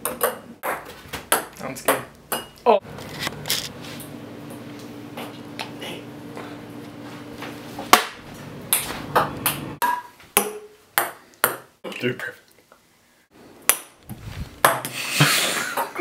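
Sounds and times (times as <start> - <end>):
refrigerator humming: 2.7 - 9.8.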